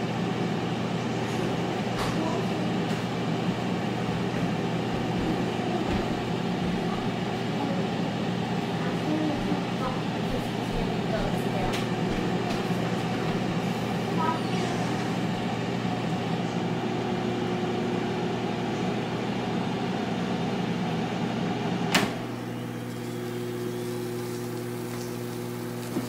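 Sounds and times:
air fryer fan humming: 0:00.0 - 0:26.0
air fryer basket click: 0:21.9 - 0:23.1.

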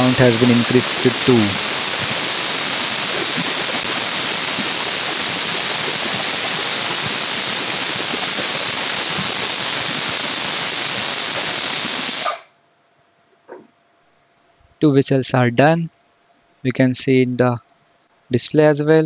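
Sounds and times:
pressure cooker steam hiss: 0:00.0 - 0:12.4.

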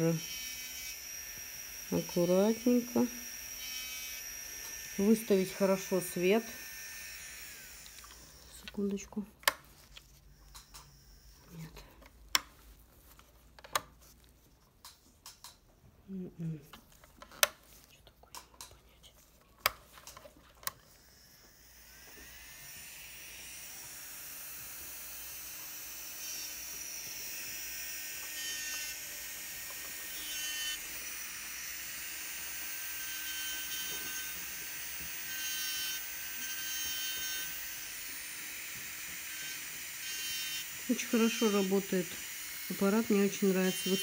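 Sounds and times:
electric nail drill whining: 0:00.0 - 0:08.9, 0:09.8 - 0:12.0, 0:20.7 - 0:44.0.

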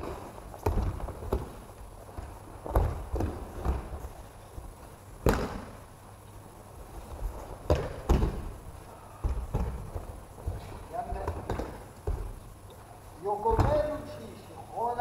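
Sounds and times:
bodies thudding on gym mats: 0:00.0 - 0:05.9, 0:06.8 - 0:12.6.

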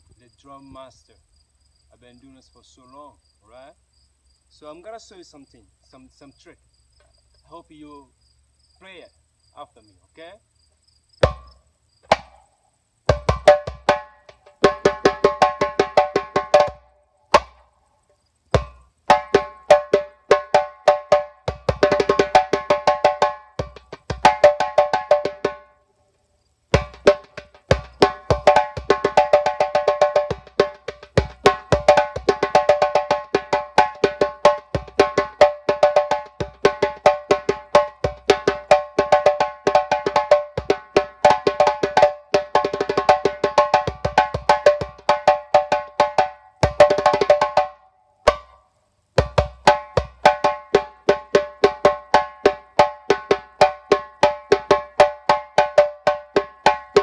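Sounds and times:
djembe played with hands: 0:11.2 - 0:11.5, 0:12.1 - 0:12.4, 0:13.1 - 0:17.7, 0:18.5 - 0:25.8, 0:26.7 - 0:48.6, 0:49.2 - 0:57.0.

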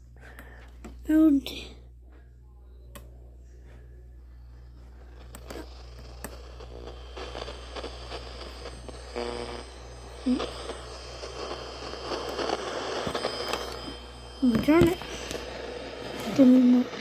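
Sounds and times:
radio low hum: 0:00.0 - 0:17.0
radio static hiss: 0:03.6 - 0:17.0
buzzy tone: 0:04.1 - 0:17.0
radio being handled: 0:10.6 - 0:16.3.

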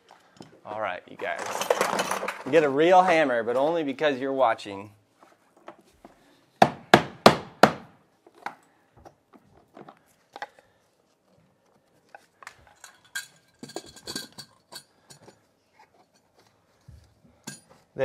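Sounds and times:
metallic clicks and clinks: 0:12.4 - 0:15.5.

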